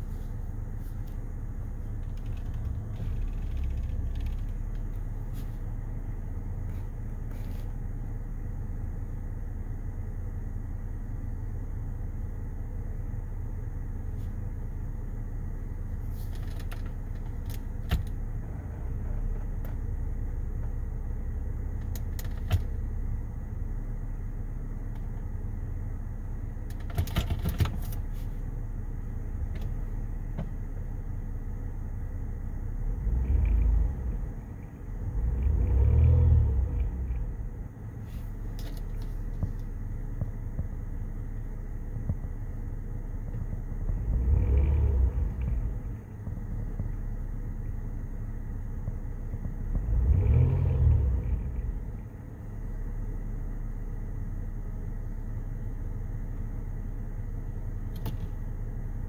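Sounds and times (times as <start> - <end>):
car engine idling: 0.0 - 59.0
low rumbles: 0.0 - 59.0.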